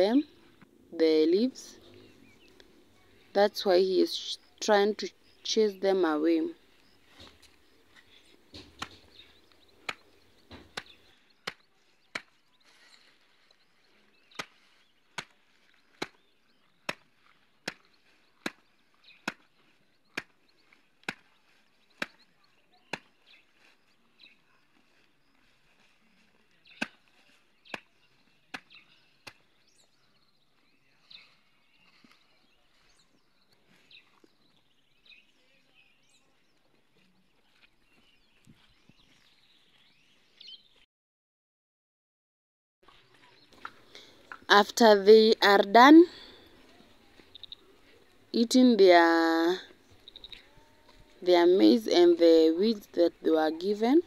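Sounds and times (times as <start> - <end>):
machete chopping stalks: 9.8 - 12.4, 14.3 - 16.2, 16.8 - 20.4, 21.0 - 21.3, 26.8 - 27.1.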